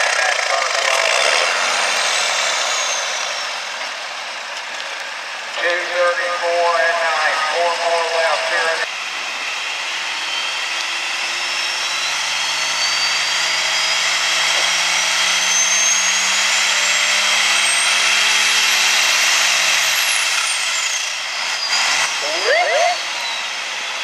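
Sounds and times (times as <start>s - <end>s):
high whine: 0.0s - 14.7s.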